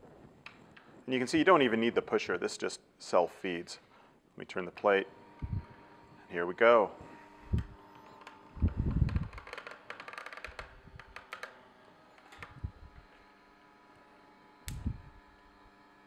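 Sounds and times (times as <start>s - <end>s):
juicer motor humming: 4.8s - 16.0s.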